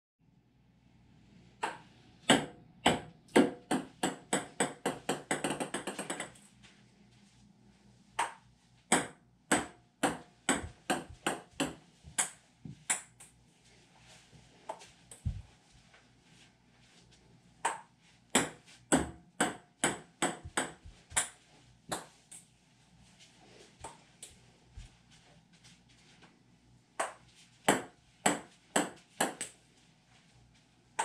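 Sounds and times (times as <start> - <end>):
table tennis ball bouncing: 1.6 - 6.4, 8.2 - 13.3, 17.6 - 22.2, 27.0 - 29.6.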